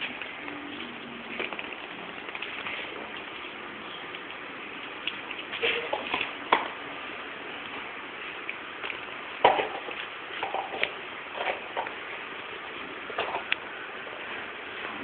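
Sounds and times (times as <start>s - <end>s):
puppy pawing ball on concrete: 0.0s - 6.8s, 7.6s - 12.0s.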